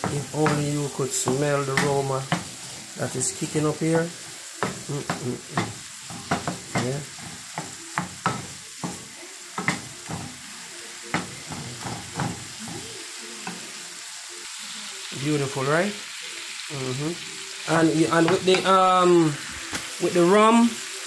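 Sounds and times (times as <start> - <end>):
wooden spoon scraping a pan: 0.0 - 10.5
shrimp sizzling in a frying pan: 0.0 - 21.0.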